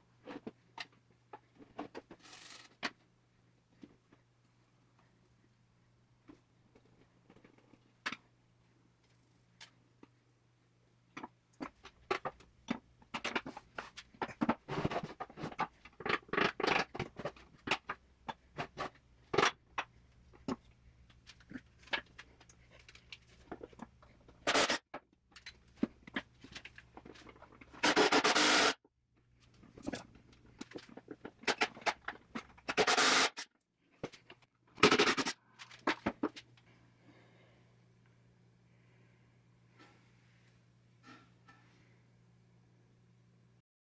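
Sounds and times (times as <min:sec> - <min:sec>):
cordless impact driver bursts: 0:27.8 - 0:28.8, 0:32.7 - 0:33.4.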